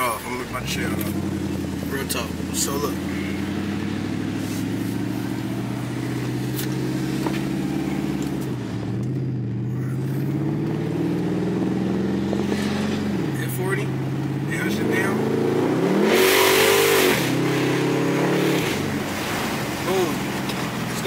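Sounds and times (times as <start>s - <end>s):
car engine heard from cabin: 0.0s - 21.0s.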